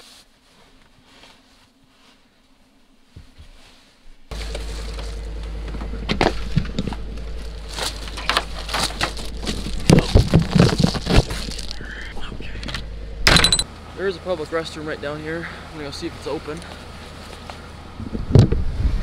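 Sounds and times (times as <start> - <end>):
faint rustling: 0.0 - 13.2
footsteps crunching in frozen snow: 4.3 - 11.9
steady low rumble: 4.3 - 19.0.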